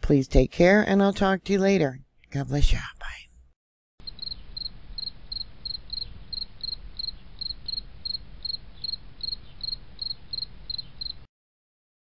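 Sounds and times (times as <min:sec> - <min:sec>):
cricket chirping: 0:04.0 - 0:11.3.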